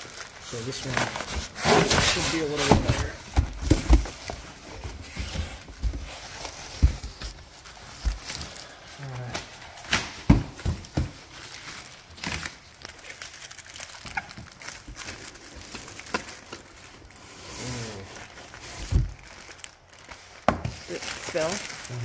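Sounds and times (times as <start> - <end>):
cardboard box rustling: 0.0 - 8.7
plastic bag crinkling: 0.0 - 9.8, 10.6 - 22.0.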